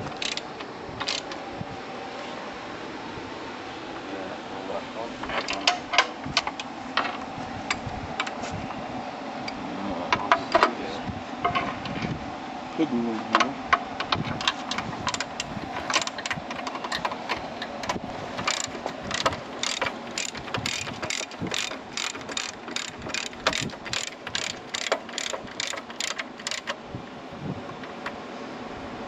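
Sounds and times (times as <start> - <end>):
ratchet wrench clicking: 0.2 - 0.4, 1.0 - 1.3, 14.4 - 26.8.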